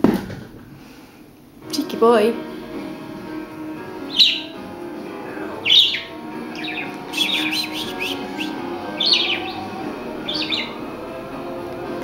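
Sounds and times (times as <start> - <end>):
budgerigar chirping: 3.8 - 4.8, 5.4 - 10.8.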